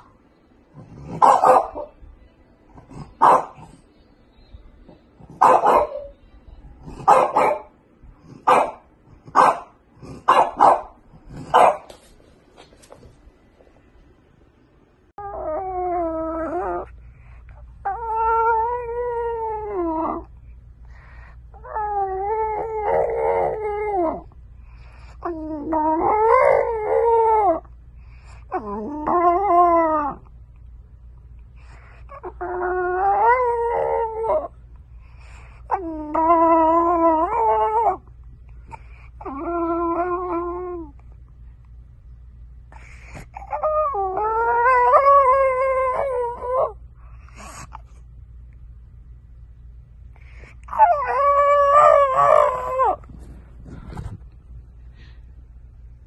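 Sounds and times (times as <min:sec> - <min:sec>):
dog howling: 0:28.5 - 0:30.3, 0:43.4 - 0:46.8, 0:50.7 - 0:53.1.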